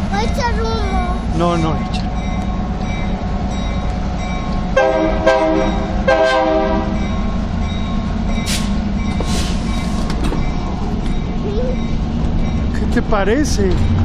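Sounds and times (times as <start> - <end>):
freight train rumbling past: 0.0 - 14.0
locomotive air horn blasts: 4.8 - 7.0.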